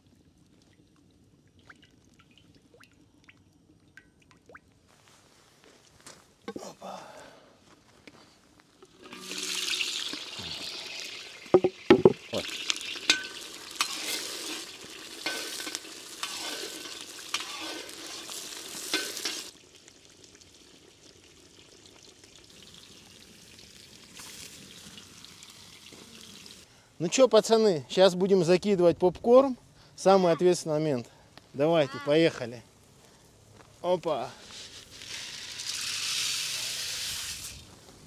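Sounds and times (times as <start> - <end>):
food sizzling in a pan: 8.9 - 26.7, 34.5 - 37.7
utensil knocking against pan: 11.6 - 12.2.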